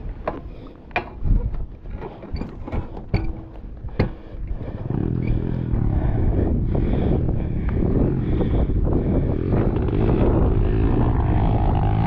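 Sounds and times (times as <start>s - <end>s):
motorbike engine running: 4.6s - 12.0s.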